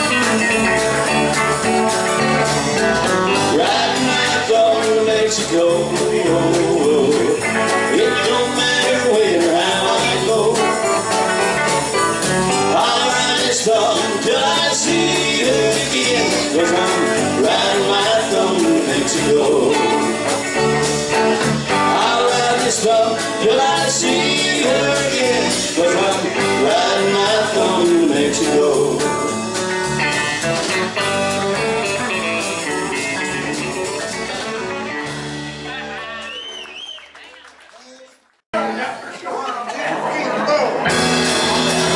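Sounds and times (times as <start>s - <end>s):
electric lead guitar: 0.0s - 36.3s, 40.8s - 41.9s
electric bass: 0.0s - 36.4s, 40.8s - 41.9s
rhythm guitar: 0.0s - 36.8s, 40.8s - 41.9s.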